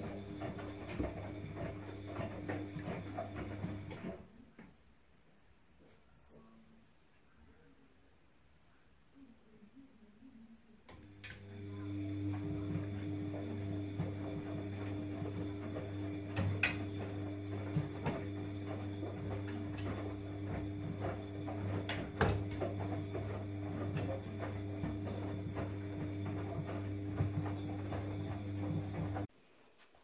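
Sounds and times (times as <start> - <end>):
washing machine motor hum: 0.0 - 4.4, 10.9 - 29.3.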